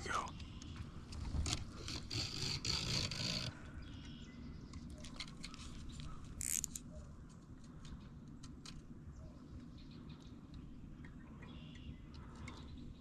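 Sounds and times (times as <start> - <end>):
fishing reel clicking: 6.4 - 6.8.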